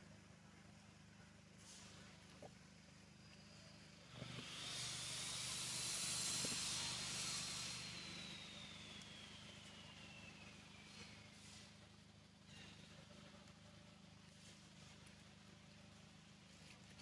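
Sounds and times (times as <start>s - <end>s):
steady low hum: 0.0s - 17.0s
whine sliding down in pitch: 5.9s - 11.7s.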